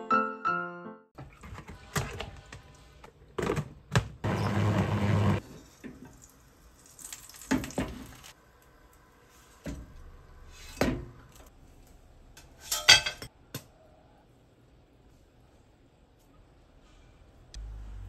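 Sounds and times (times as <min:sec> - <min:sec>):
dishes and cutlery clinking: 0:12.4 - 0:13.3
kitchen utensils knocking and clinking: 0:12.4 - 0:13.3.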